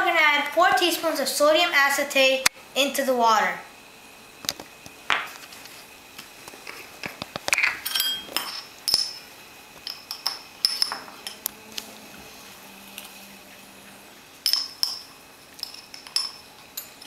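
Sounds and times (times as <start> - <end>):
spoon clinking against glass jar: 7.6 - 11.4, 14.4 - 17.0.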